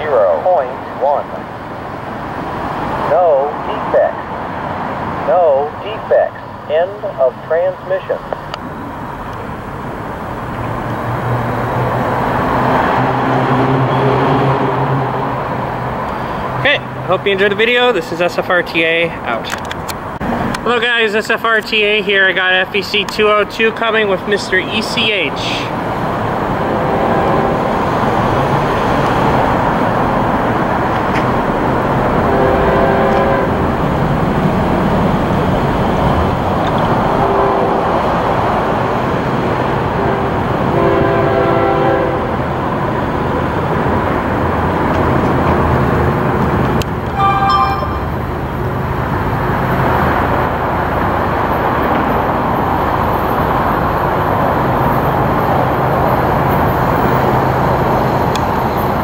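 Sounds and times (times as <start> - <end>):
diesel locomotive running: 0.0 - 59.0
train horn blasts: 26.7 - 27.7, 32.2 - 33.6, 40.0 - 42.4, 47.2 - 48.3
brief high-pitched tone: 47.2 - 48.7.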